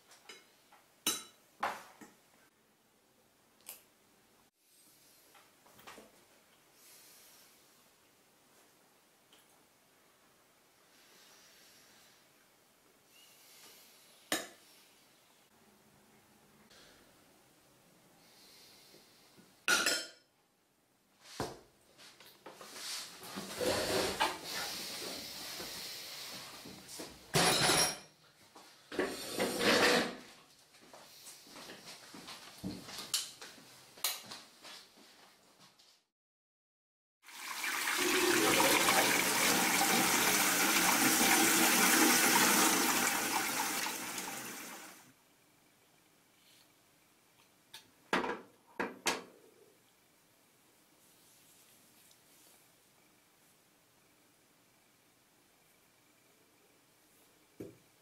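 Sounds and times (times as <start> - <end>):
water rushing: 37.3 - 45.0.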